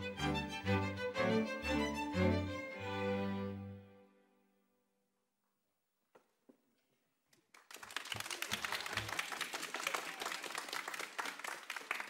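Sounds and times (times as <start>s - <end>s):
audience applause: 7.4s - 12.0s.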